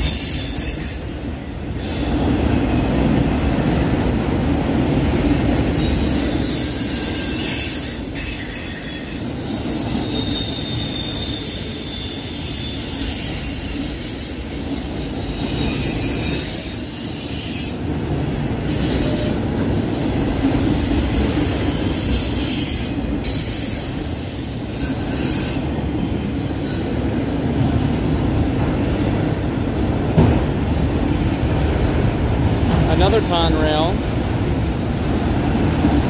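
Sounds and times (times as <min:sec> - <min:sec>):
freight cars rolling on rails: 0:00.0 - 0:36.0
high-pitched wheel squeal: 0:05.6 - 0:17.8.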